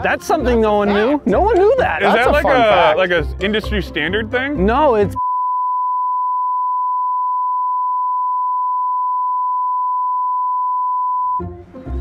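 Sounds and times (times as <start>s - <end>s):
censor bleep tone: 5.2s - 11.4s.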